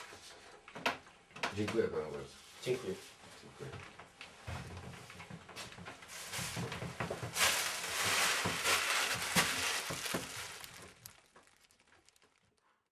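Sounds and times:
board rustling: 6.1 - 12.2.

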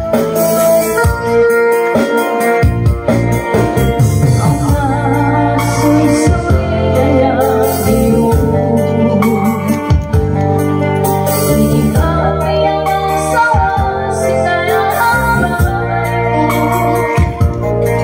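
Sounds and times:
electronic keyboard organ chords: 0.0 - 18.0
woman singing into microphone: 4.3 - 10.4, 11.3 - 18.0.

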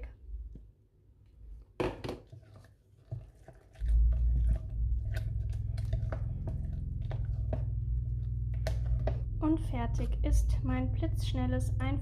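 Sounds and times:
spatula squelching in bowl: 2.2 - 9.3
steady low rumble: 3.8 - 12.0.

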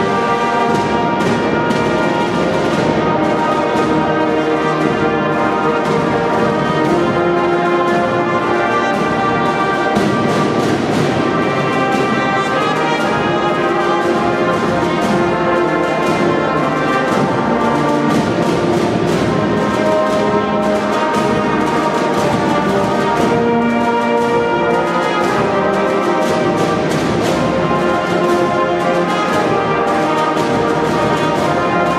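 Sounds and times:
brass instruments playing: 0.0 - 31.9
side drums beating: 0.0 - 31.9.

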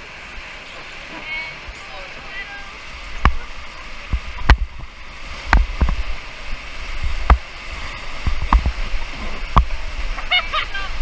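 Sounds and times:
rushing whitewater: 0.0 - 11.0
sharp knocks and thumps: 4.1 - 6.1, 7.0 - 7.5, 8.2 - 10.3.

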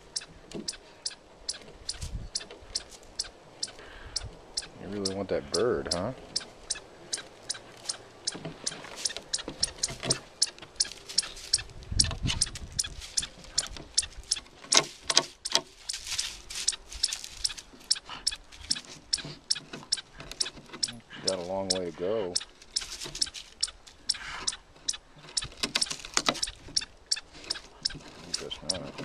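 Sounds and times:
teeth and claws clicking on wood: 6.3 - 16.0, 16.6 - 29.0
dog snuffling breaths: 16.4 - 19.5, 24.1 - 24.6.

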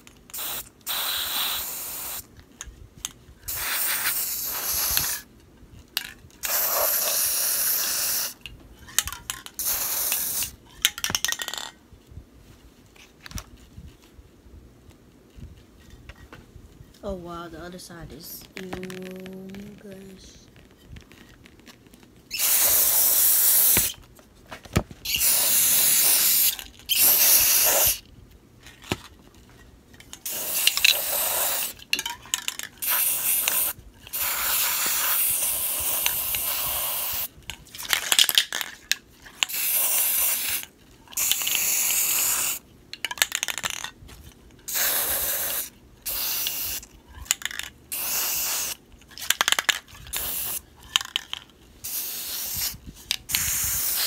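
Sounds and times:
spray paint can hissing: 0.3 - 2.3, 3.5 - 5.3, 6.4 - 8.4, 9.6 - 10.6, 22.3 - 24.0, 25.0 - 28.0, 30.2 - 31.8, 32.8 - 37.3, 39.5 - 42.6, 44.7 - 51.2, 51.8 - 54.0.

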